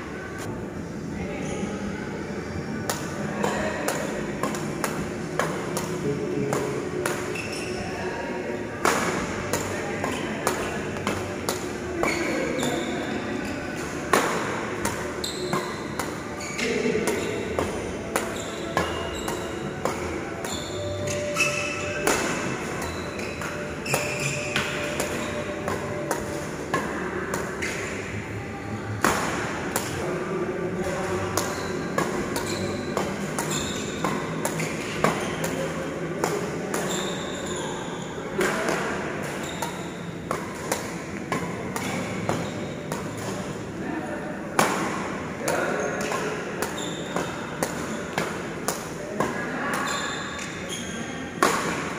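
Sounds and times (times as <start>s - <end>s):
rackets hitting shuttlecock: 2.8s - 7.8s, 8.8s - 13.1s, 13.8s - 28.1s, 29.0s - 30.0s, 30.8s - 37.6s, 38.4s - 43.6s, 44.5s - 51.9s
shoes squeaking on court: 6.5s - 8.0s, 9.0s - 14.4s, 15.0s - 26.8s, 27.4s - 28.2s, 30.8s - 35.9s, 36.6s - 43.4s, 45.5s - 48.5s, 49.3s - 51.8s.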